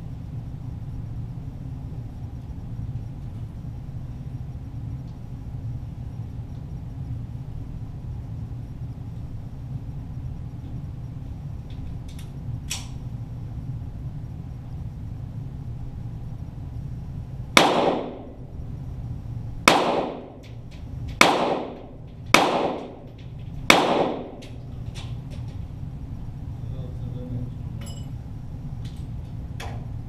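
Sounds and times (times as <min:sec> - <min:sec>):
pistol shots with echo: 0:17.6 - 0:18.5, 0:19.7 - 0:20.4, 0:21.2 - 0:23.1, 0:23.7 - 0:24.6.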